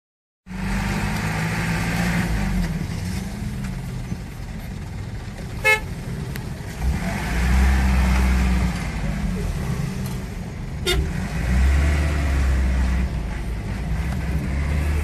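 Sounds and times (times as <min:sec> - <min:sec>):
car engines running: 0:00.5 - 0:15.0
car horns: 0:05.6 - 0:06.0, 0:10.8 - 0:11.2.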